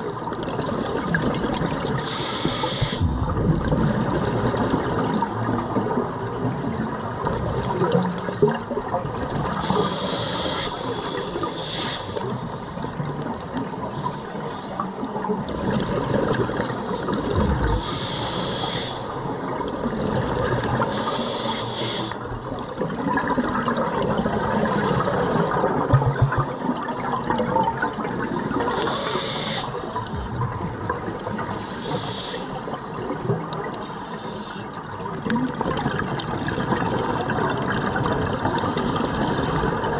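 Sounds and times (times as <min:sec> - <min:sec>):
bubbles gurgling underwater: 0:00.0 - 0:02.3, 0:02.9 - 0:09.9, 0:15.0 - 0:18.1, 0:19.2 - 0:21.0, 0:22.4 - 0:31.5, 0:35.0 - 0:39.9
regulator inhalation hiss: 0:02.0 - 0:03.1, 0:09.6 - 0:12.4, 0:17.8 - 0:19.2, 0:20.9 - 0:22.2, 0:28.7 - 0:30.2, 0:31.2 - 0:33.0.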